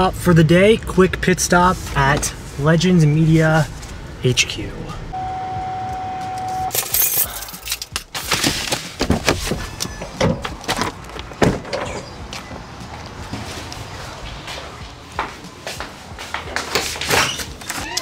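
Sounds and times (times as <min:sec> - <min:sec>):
electronic beep: 0:05.2 - 0:06.8
vinyl banners rustling: 0:08.1 - 0:17.8.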